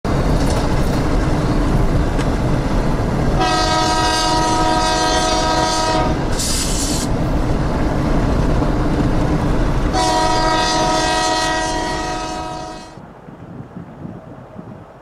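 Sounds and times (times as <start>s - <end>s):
locomotives rumbling past: 0.1s - 15.0s
multi-tone train horn blast: 3.4s - 7.0s, 9.9s - 13.0s.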